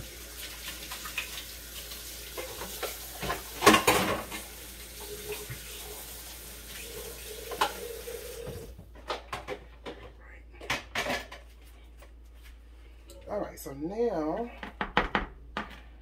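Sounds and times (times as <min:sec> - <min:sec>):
faucet running into sink: 0:00.0 - 0:08.8
clatter in metal sink: 0:02.3 - 0:04.5.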